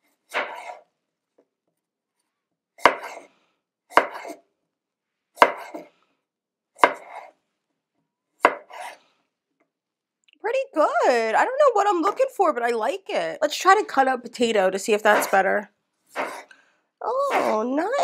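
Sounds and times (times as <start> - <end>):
knife chopping apple on board: 0.3 - 0.8, 2.8 - 3.3, 3.9 - 4.4, 5.4 - 5.9, 6.8 - 7.3, 8.4 - 9.0, 16.2 - 16.5.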